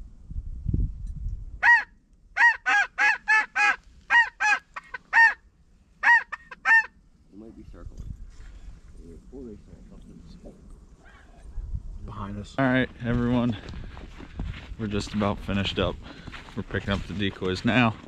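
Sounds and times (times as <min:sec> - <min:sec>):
goose honking: 0:01.6 - 0:05.4, 0:06.0 - 0:06.9.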